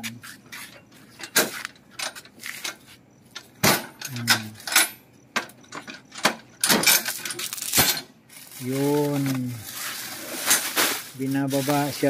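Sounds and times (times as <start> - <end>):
metal rods knocking and rattling: 1.2 - 8.1.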